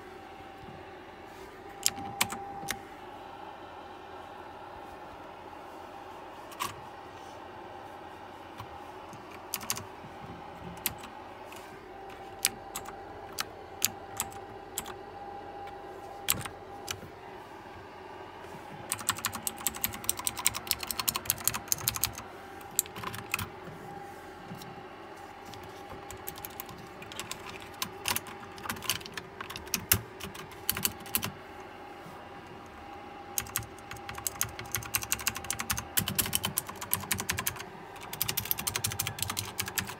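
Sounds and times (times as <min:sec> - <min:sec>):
faint steady hum: 0:00.0 - 0:39.9
clicky keyboard typing: 0:01.8 - 0:02.8, 0:08.6 - 0:09.9, 0:10.6 - 0:11.1, 0:12.4 - 0:15.0, 0:16.2 - 0:17.0, 0:18.9 - 0:23.5, 0:25.5 - 0:31.4, 0:33.4 - 0:39.9.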